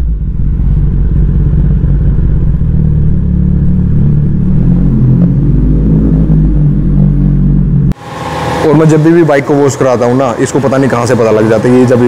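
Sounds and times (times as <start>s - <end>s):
motorcycle engine at low revs: 0.0s - 8.8s.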